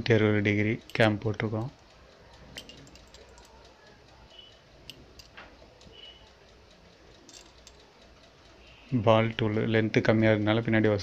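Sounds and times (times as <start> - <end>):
low steady hum: 0.0 - 11.0
metal tool parts clicking: 2.5 - 3.7, 4.9 - 5.5, 7.2 - 7.9.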